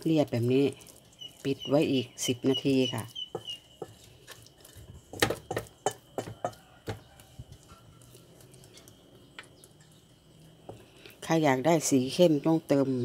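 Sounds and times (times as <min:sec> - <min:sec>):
wooden spatula scraping metal bowl: 0:00.0 - 0:09.0.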